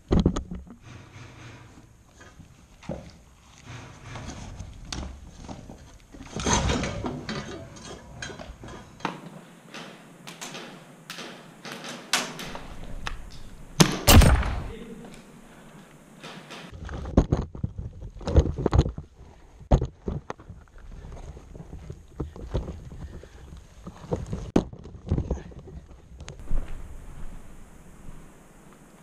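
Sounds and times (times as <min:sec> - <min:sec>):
heavy thuds: 0:09.6 - 0:16.7.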